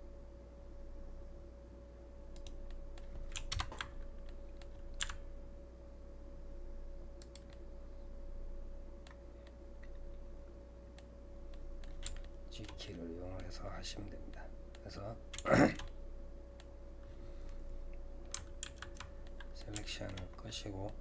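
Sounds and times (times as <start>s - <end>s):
faint electrical hum: 0.0s - 21.0s
keyboard and mouse clicks: 2.3s - 5.2s, 7.2s - 7.6s, 10.9s - 13.5s, 18.2s - 21.0s.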